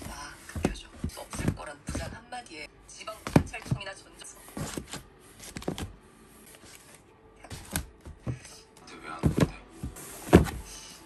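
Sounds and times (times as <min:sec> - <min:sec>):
albums knocking in cardboard box: 0:10.2 - 0:10.6.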